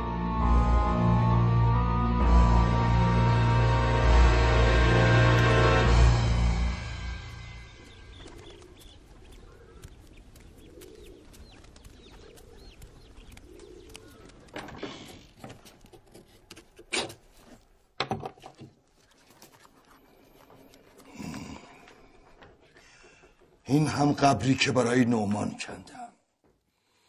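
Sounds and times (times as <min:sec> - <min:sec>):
small birds chirping: 0:07.2 - 0:16.6, 0:18.9 - 0:23.6
doves cooing: 0:07.8 - 0:15.9.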